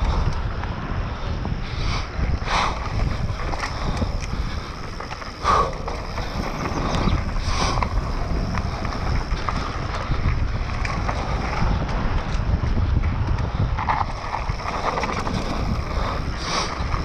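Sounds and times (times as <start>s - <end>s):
wind buffeting microphone: 0.0s - 17.0s
bike chain and frame rattling: 1.6s - 17.0s
tyres rumbling on dirt: 2.1s - 17.0s.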